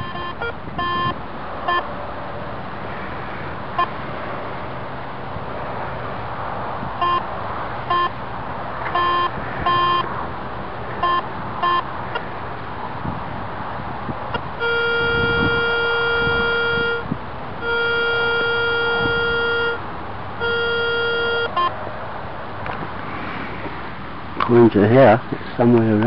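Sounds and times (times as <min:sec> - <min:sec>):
metal detector beeping: 0:00.0 - 0:01.9, 0:07.0 - 0:07.2, 0:07.9 - 0:08.2, 0:08.9 - 0:10.1, 0:11.0 - 0:11.9, 0:14.3 - 0:17.0, 0:17.6 - 0:19.8, 0:20.4 - 0:21.8.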